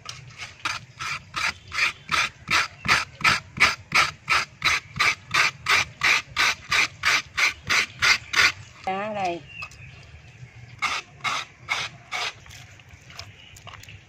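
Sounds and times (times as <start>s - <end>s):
papaya rasping on a grater: 0.0s - 8.7s, 10.8s - 12.8s.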